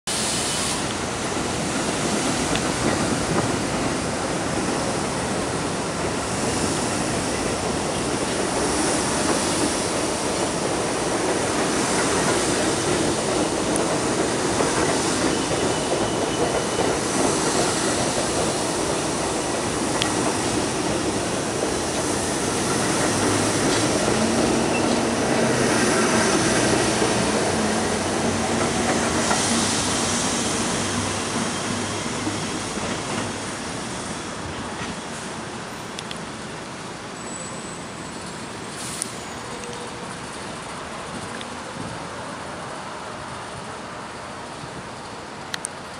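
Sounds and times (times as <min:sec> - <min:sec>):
subway train passing: 0:00.1 - 0:45.9
wheels clacking over rail joints: 0:06.0 - 0:33.4.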